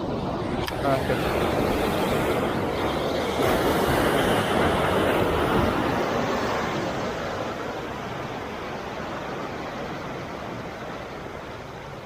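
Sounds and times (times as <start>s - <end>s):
waves washing over rocks: 0.0s - 12.0s.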